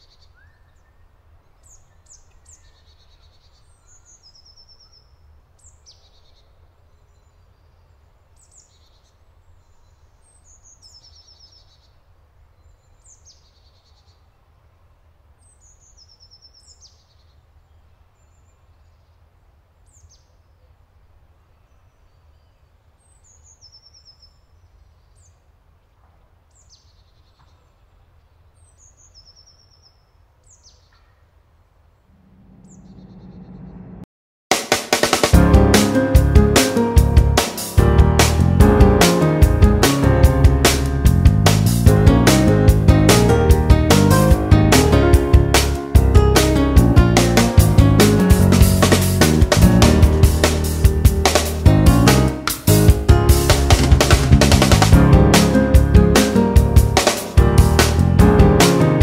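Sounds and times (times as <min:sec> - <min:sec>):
songbird calling with trill: 0:00.0 - 0:06.5
steady low rumble: 0:32.1 - 0:34.1, 0:35.4 - 0:58.6.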